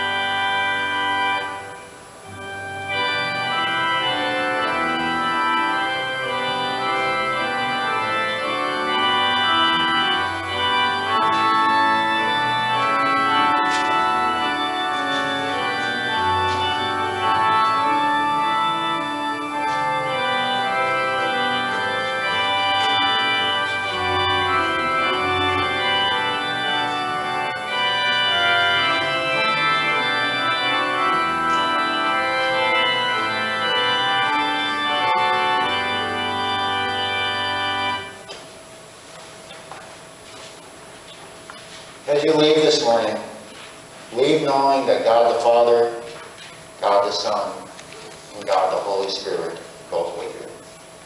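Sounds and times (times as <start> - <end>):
church organ playing a hymn: 0.0 - 51.0.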